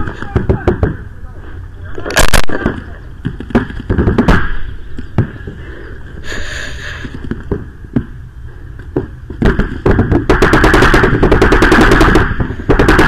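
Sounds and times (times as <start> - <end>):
paintball gun firing: 2.1 - 4.6, 9.4 - 13.0.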